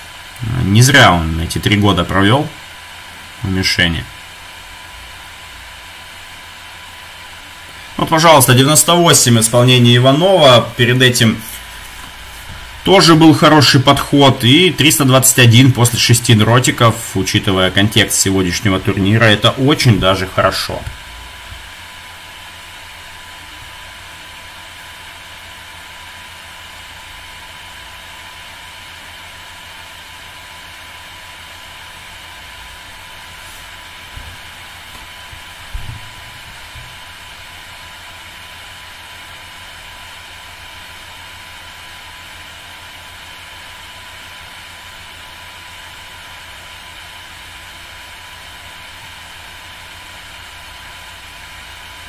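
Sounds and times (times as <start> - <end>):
steady hiss: 0.0 - 52.0
dull thumps: 34.1 - 37.0.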